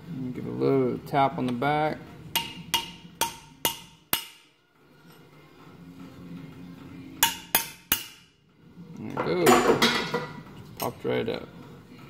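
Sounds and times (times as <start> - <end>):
hammer tapping steel punch: 2.3 - 4.5, 7.2 - 8.3.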